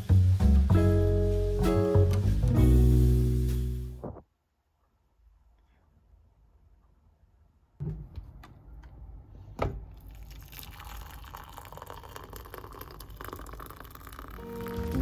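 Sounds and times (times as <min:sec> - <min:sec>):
water pouring into mug: 0:10.0 - 0:15.0.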